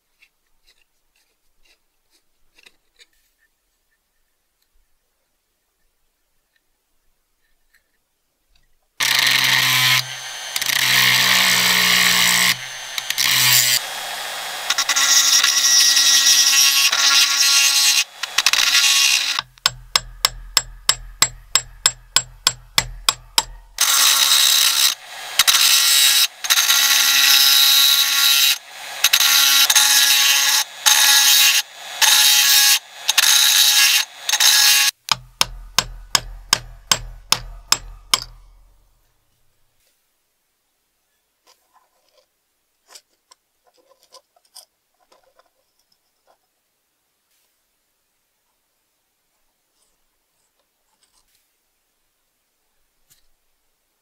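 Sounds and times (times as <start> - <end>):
harsh metal tool noise: 9.0 - 38.8.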